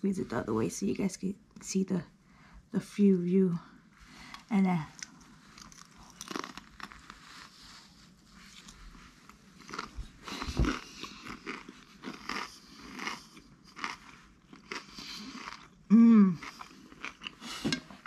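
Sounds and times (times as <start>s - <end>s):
crunchy chewing: 5.0s - 7.5s, 8.6s - 17.7s.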